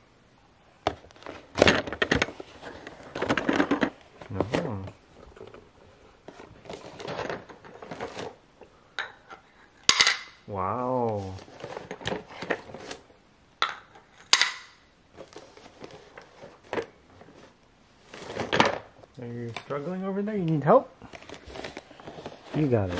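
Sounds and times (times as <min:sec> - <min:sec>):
small toys clattering: 0:01.1 - 0:08.4, 0:11.2 - 0:13.0.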